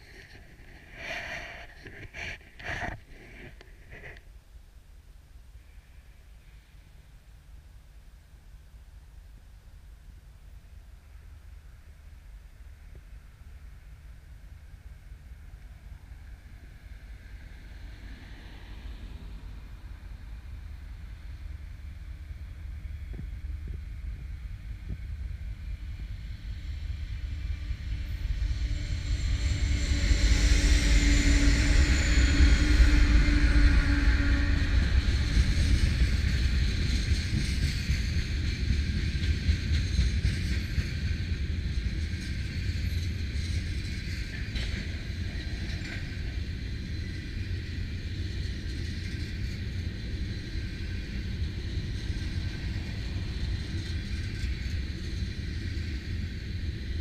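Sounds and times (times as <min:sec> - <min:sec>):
train wheels rumbling on rail: 0:00.0 - 0:04.3, 0:10.7 - 0:57.0
locomotive engine rumble: 0:13.0 - 0:57.0.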